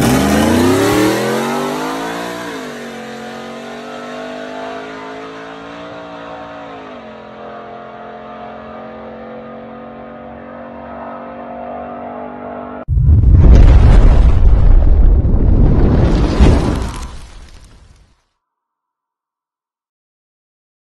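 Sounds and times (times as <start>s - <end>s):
pickup truck engine at full throttle: 0.0s - 10.1s.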